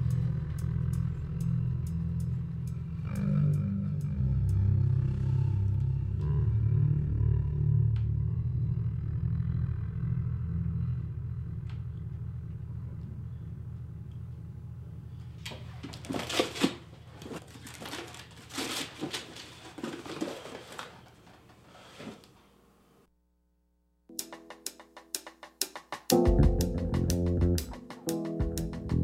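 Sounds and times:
low steady hum: 0:00.0 - 0:18.3
cardboard box rustling and scraping: 0:15.9 - 0:20.9.

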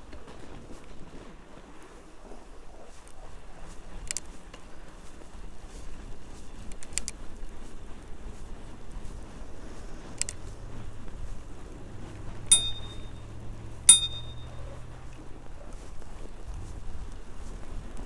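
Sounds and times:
low steady rumble: 0:09.6 - 0:15.4
bicycle bell ringing: 0:12.5 - 0:13.3, 0:13.9 - 0:14.8.

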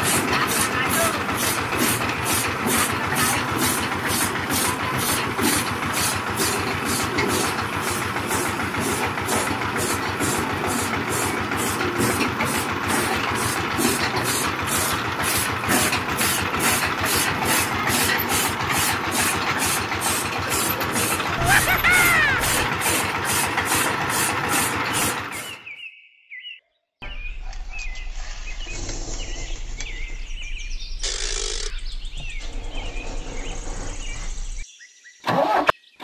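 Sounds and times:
small motor running: 0:00.0 - 0:25.6, 0:31.0 - 0:34.6
toy cutter chopping grass: 0:00.0 - 0:25.6.

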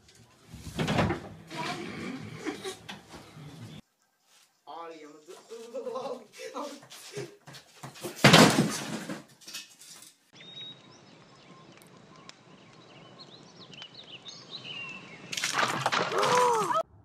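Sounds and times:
table crashing over: 0:08.0 - 0:09.4
small birds chirping: 0:10.3 - 0:15.4.

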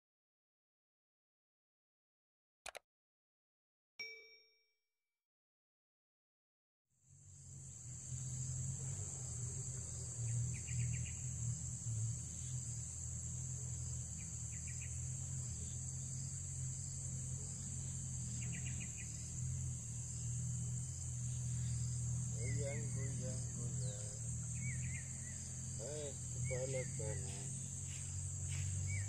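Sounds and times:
insects droning: 0:07.0 - 0:29.0
low steady rumble: 0:07.1 - 0:29.0.

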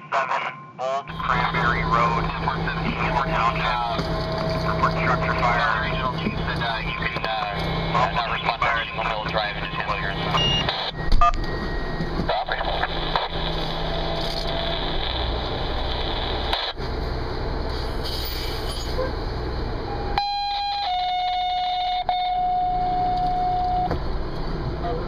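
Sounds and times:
two-tone radio page: 0:00.0 - 0:13.7
fire engine idling: 0:01.1 - 0:25.0.

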